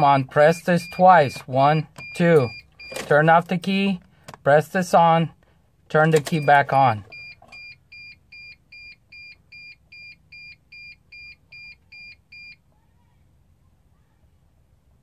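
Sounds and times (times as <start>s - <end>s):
instrument cluster chime beeping: 0.7s - 3.0s.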